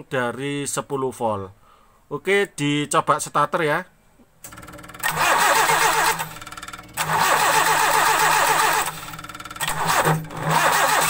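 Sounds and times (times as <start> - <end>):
starter motor cranking: 4.5 - 11.0.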